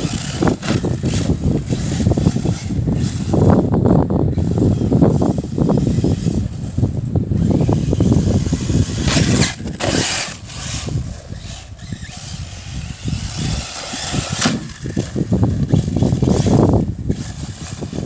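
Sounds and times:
electric rc car motor: 0.0s - 18.0s.

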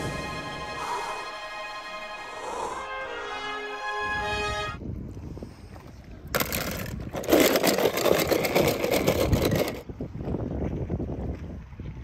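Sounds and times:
low wind rumble: 0.0s - 12.0s
toy cars rattling in plastic tub: 6.3s - 9.9s.

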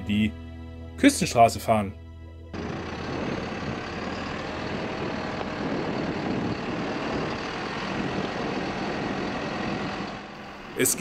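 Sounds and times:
diesel truck engine running: 2.5s - 11.0s
road and wind noise: 2.5s - 11.0s.

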